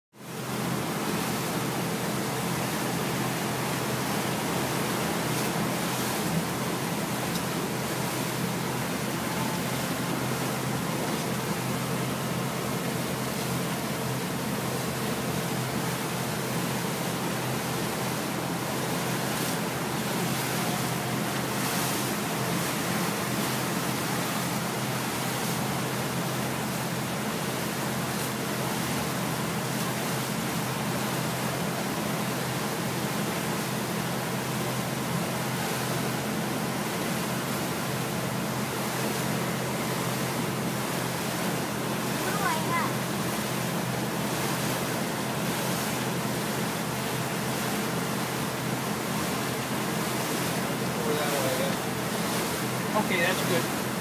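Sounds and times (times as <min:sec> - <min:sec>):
rush of wind and water: 0:00.1 - 0:54.0
motorboat engine drone: 0:00.2 - 0:54.0.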